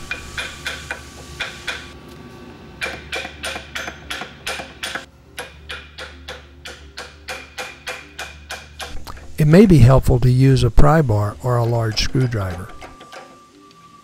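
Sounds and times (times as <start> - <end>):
hammer tapping on metal: 0.1 - 1.9, 2.8 - 9.3.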